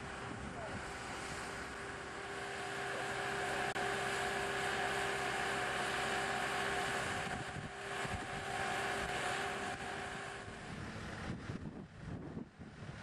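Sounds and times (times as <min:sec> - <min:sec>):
engine and hydraulics whining: 0:00.0 - 0:13.0
wind noise on microphone: 0:07.0 - 0:13.0.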